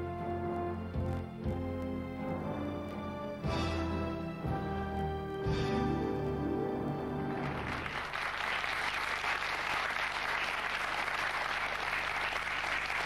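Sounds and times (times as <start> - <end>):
tv theme tune: 0.0 - 8.0
studio audience applauding: 7.2 - 13.0.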